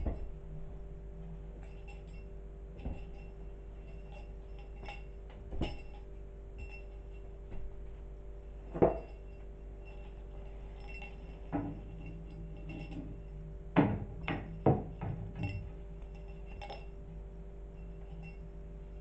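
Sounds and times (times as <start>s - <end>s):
steady hum: 0.0s - 19.0s
kitten playing with wand toy: 1.6s - 7.3s.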